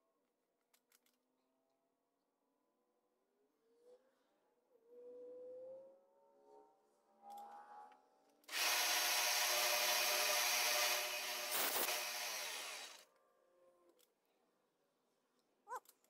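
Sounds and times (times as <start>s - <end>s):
milling machine cutting metal: 8.5s - 13.0s.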